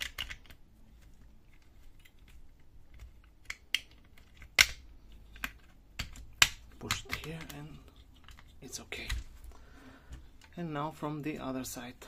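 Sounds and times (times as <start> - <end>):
plastic parts clicking: 0.0 - 9.3.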